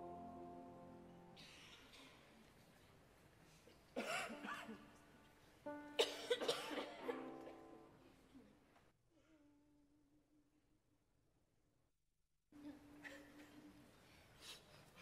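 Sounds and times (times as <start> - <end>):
person coughing and clearing throat: 4.0 - 4.8, 6.0 - 7.2.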